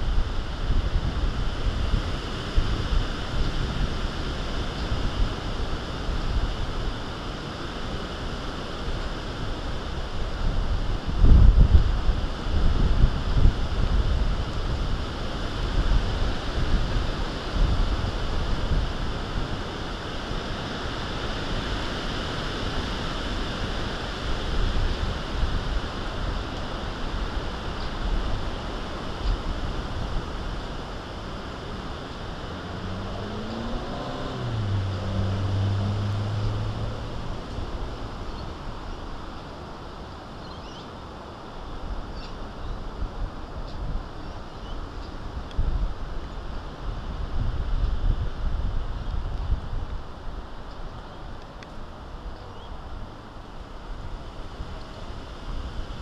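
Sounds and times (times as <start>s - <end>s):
wind buffeting microphone: 0.0s - 40.1s, 41.8s - 56.0s
low hum rising in pitch: 31.5s - 38.7s.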